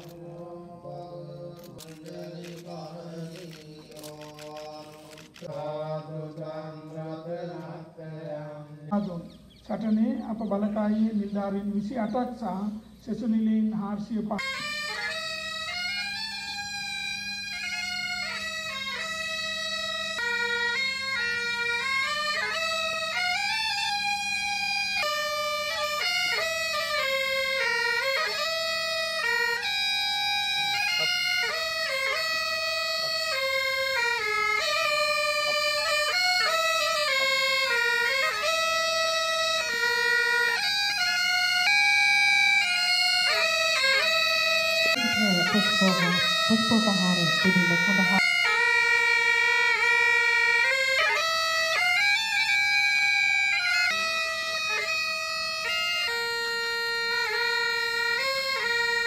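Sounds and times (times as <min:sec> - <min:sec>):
bagpipes playing over drone: 0:14.3 - 0:59.0.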